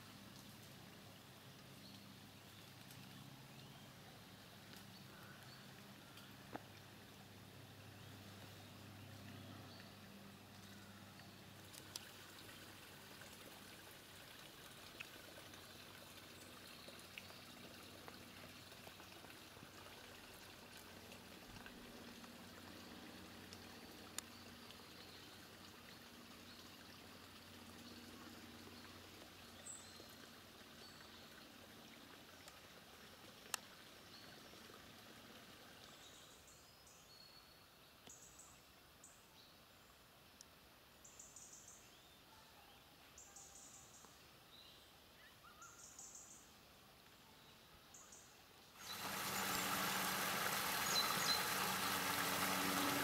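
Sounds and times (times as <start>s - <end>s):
brook trickling: 0.0s - 37.3s, 47.9s - 53.0s.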